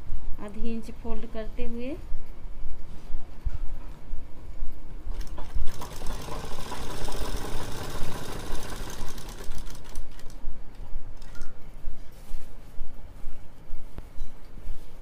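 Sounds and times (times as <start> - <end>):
sewing machine stitching: 5.1 - 10.4
fabric handling: 11.9 - 15.0.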